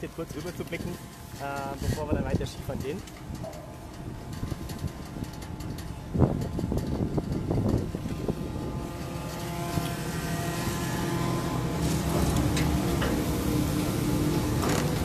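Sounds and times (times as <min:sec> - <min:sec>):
chairlift clunk: 0:00.0 - 0:15.0
machinery whirring hum: 0:00.0 - 0:15.0.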